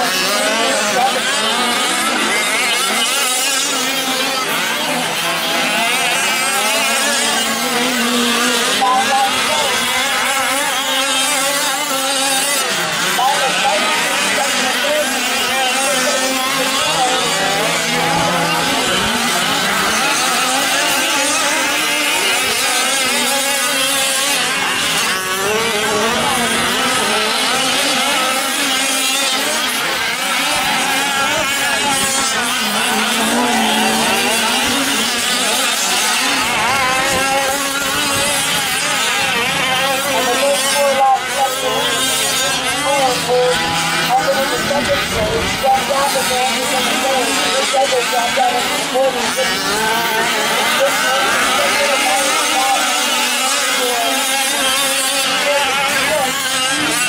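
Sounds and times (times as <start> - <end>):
small two-stroke engines racing: 0.0 - 57.0.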